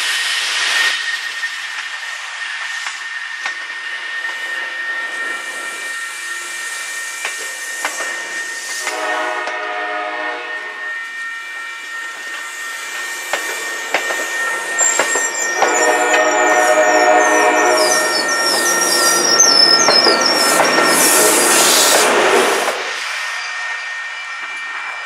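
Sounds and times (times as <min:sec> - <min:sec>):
train wheels clicking over rail joints: 0:07.1 - 0:09.6, 0:12.1 - 0:16.5, 0:17.8 - 0:23.2
train horn: 0:08.8 - 0:11.1, 0:15.6 - 0:18.1
crossing signal ringing tone: 0:09.0 - 0:22.4.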